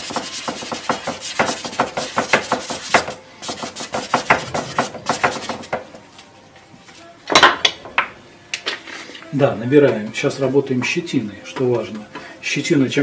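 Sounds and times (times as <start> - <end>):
paintbrush scrubbing on canvas: 0.0 - 5.7.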